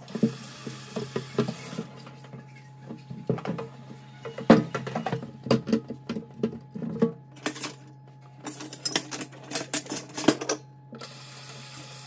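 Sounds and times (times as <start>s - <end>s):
dishes and utensils clattering: 2.3s - 10.6s.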